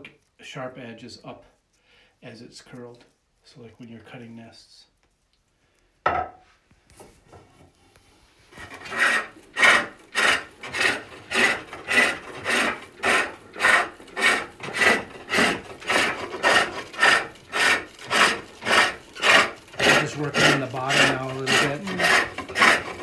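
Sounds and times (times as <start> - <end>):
hook tool shaving wood: 8.5 - 23.0.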